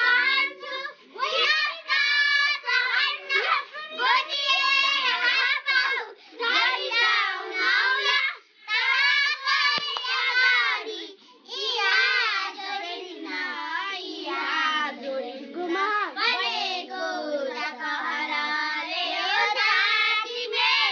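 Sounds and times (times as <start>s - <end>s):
young girls singing: 0.0s - 20.9s.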